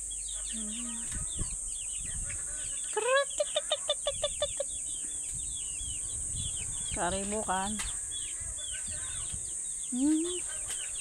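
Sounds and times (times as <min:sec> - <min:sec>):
faint high chirping: 0:00.0 - 0:11.0
chicken clucking: 0:02.3 - 0:05.0.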